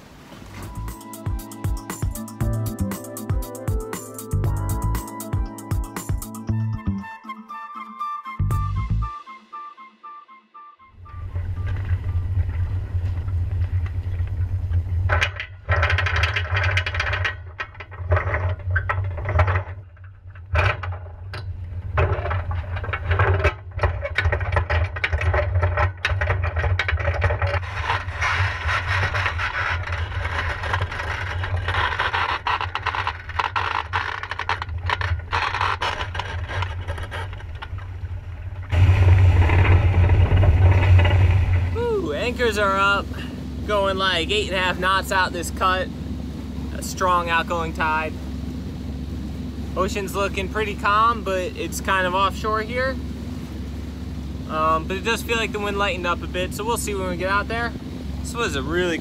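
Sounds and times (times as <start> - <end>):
steady low rumble: 0.6 - 6.9, 11.0 - 59.0
anchor chain rattling: 11.1 - 48.0.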